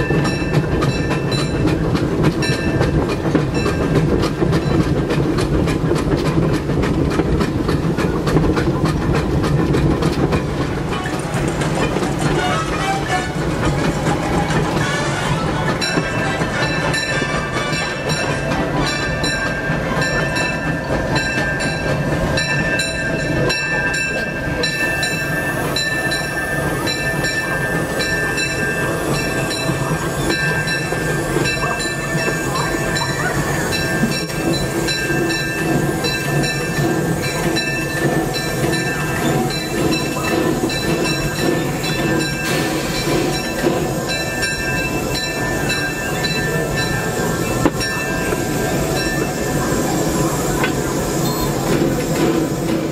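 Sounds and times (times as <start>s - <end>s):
steam locomotive rumbling: 0.0s - 52.9s
high steam hiss: 11.3s - 52.9s.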